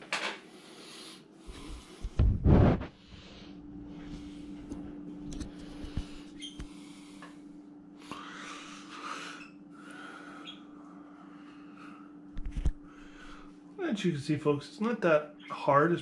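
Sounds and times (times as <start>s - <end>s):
low hum: 1.4s - 13.8s.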